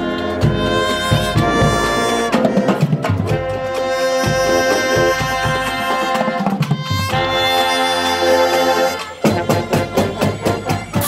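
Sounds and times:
brass bugles playing loud chords: 0:00.0 - 0:11.0
marching snare drums: 0:00.0 - 0:11.0.

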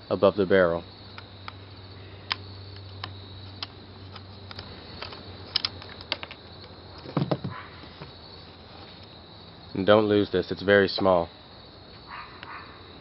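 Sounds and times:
gun knocking on wooden boards: 0:07.0 - 0:07.6.

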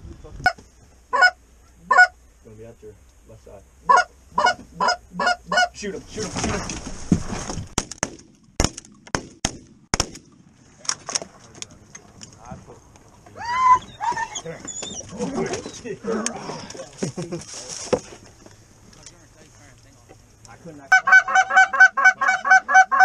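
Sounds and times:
geese honking and clucking: 0:00.4 - 0:02.2, 0:03.8 - 0:06.0, 0:20.9 - 0:23.0
shotgun shots: 0:07.8 - 0:10.4.

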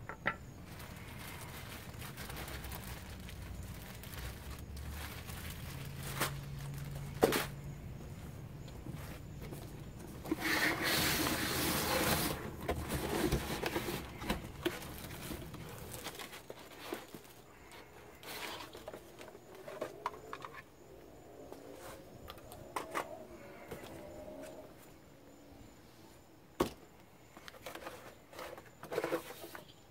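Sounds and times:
cardboard box rustling and scraping: 0:08.9 - 0:17.4, 0:27.6 - 0:29.7.

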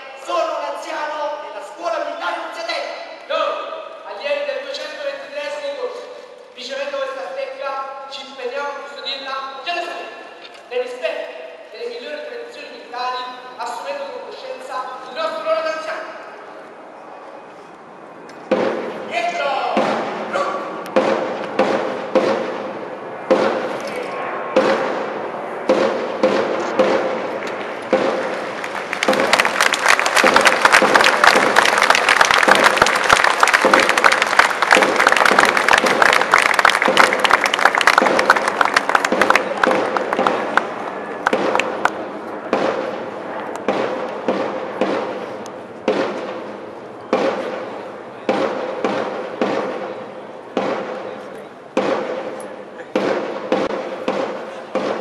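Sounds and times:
drum strokes echoing: 0:18.4 - 0:19.1, 0:19.7 - 0:23.8, 0:24.6 - 0:31.8, 0:39.0 - 0:55.0.

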